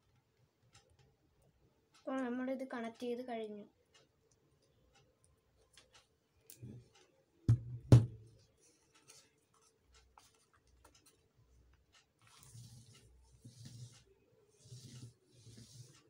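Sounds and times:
sharp knocks on tabletop: 7.5s - 8.2s.

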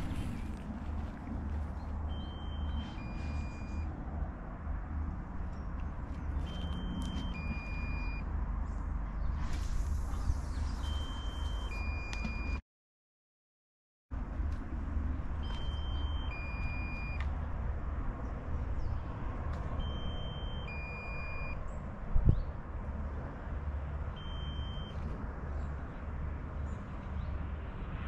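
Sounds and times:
wind buffeting microphone: 22.0s - 22.7s.

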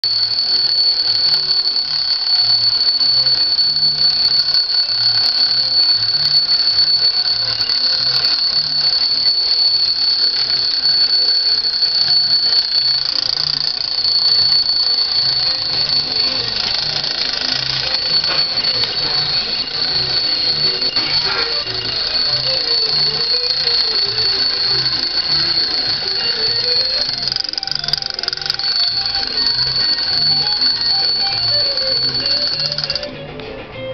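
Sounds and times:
toy sewing machine clattering: 12.3s - 33.1s.

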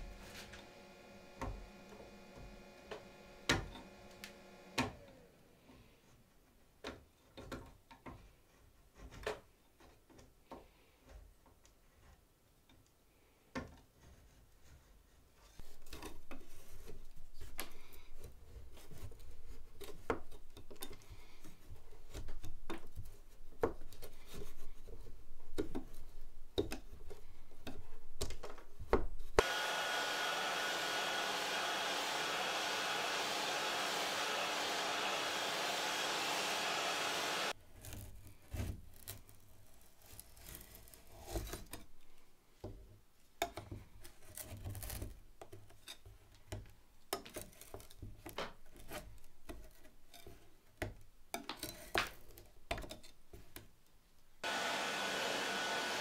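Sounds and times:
electric blower hiss: 29.4s - 37.6s, 54.4s - 56.0s.

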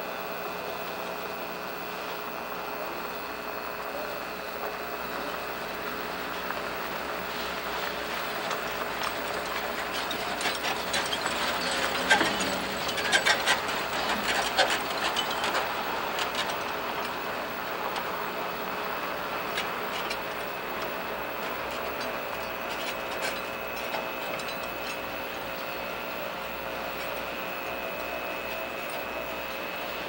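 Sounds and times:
crane boom rattling and clanking: 8.0s - 30.0s
truck driving past: 9.7s - 18.2s.

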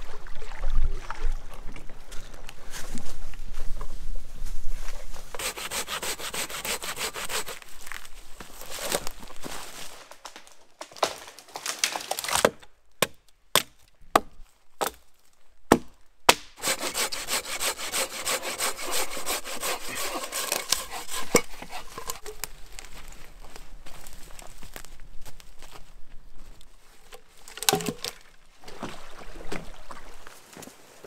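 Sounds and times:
hand saw cutting logs: 5.3s - 7.7s, 15.7s - 22.5s.

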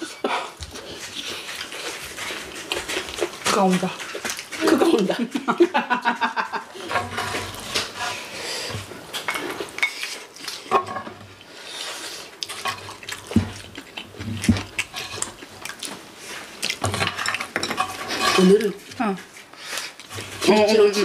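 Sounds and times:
metal spoons scraping a pan: 6.8s - 11.2s, 14.9s - 15.4s, 16.9s - 18.8s.

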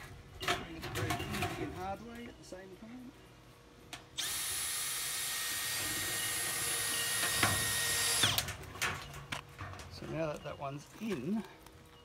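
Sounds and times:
cordless drill driving screw: 4.2s - 8.4s.

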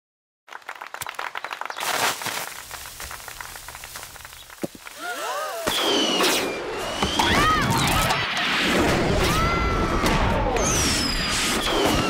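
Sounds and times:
fireworks crackling and hissing: 1.1s - 7.1s
fireworks whistling: 1.7s - 12.0s.

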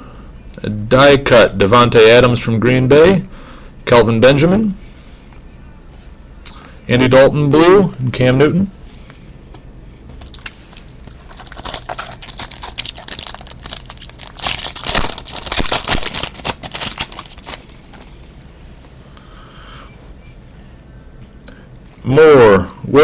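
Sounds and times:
foil wrapper crinkling: 10.2s - 18.9s.

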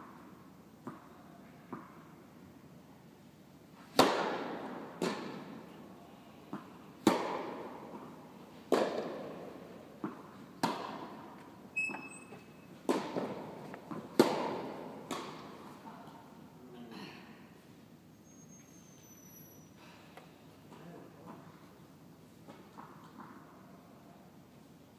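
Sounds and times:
tennis ball bouncing on court: 0.8s - 1.1s, 1.7s - 2.0s, 3.9s - 5.6s, 6.5s - 12.1s, 12.8s - 15.7s, 22.5s - 23.5s
racket hitting tennis ball: 3.8s - 5.7s, 6.5s - 11.6s, 12.8s - 15.8s.

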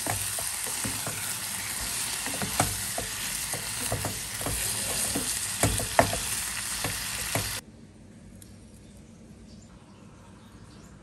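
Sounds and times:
pork sizzling in a saucepan: 0.0s - 7.6s
sharp knocks: 0.0s - 7.6s
spatula scraping and tapping pan: 0.0s - 7.6s.

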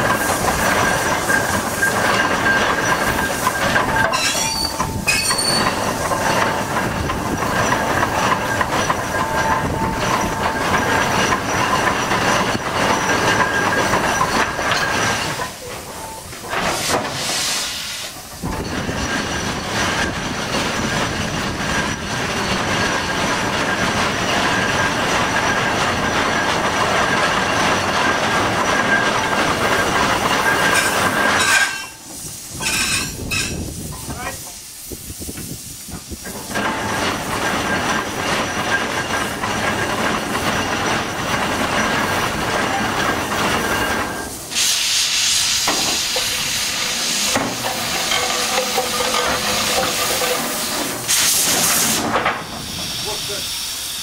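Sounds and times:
steam engine mechanical noise: 0.0s - 54.0s.

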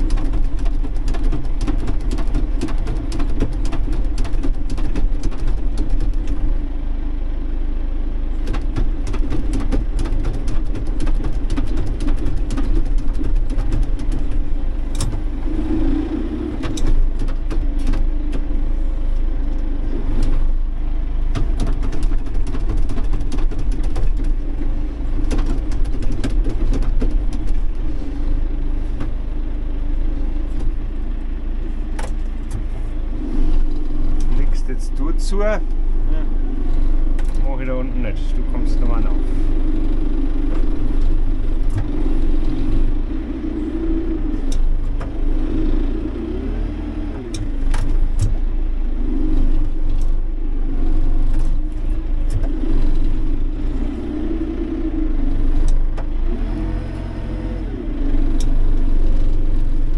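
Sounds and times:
sharp clicks and knocks: 0.0s - 6.6s, 8.4s - 15.5s, 16.5s - 18.6s, 21.2s - 27.9s, 31.9s - 32.8s, 36.7s - 39.2s, 40.4s - 43.0s, 47.1s - 48.4s
tractor engine running: 0.0s - 59.9s.

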